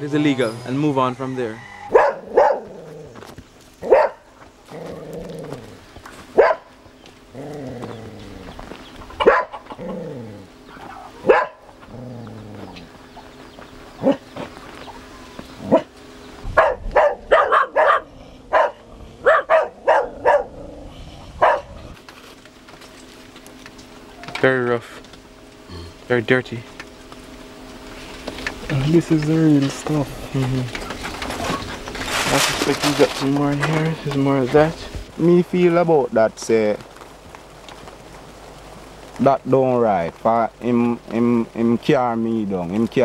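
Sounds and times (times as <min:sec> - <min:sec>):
dog barking: 0:01.8 - 0:02.7, 0:03.8 - 0:04.3, 0:06.4 - 0:06.7, 0:09.2 - 0:09.6, 0:11.2 - 0:11.7, 0:14.0 - 0:14.2, 0:15.7 - 0:15.9, 0:16.6 - 0:20.6, 0:21.4 - 0:21.8.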